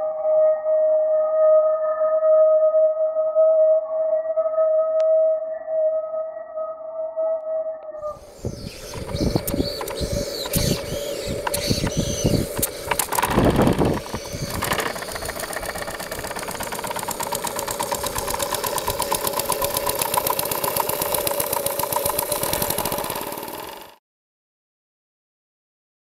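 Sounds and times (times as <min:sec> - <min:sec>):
model steam engine chuffing: 0:08.2 - 0:24.0.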